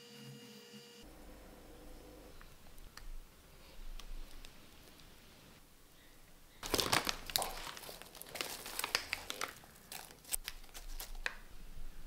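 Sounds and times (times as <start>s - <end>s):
popcorn crackling by hand: 6.6s - 11.5s.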